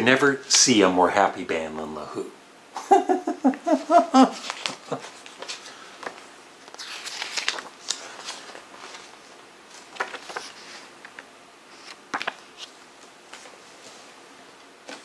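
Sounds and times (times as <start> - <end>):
paper booklet rustling: 4.4 - 14.2.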